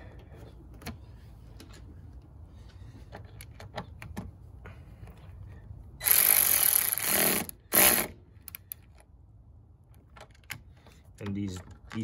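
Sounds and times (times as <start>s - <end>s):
power tool bursts on a nut: 6.0s - 8.2s.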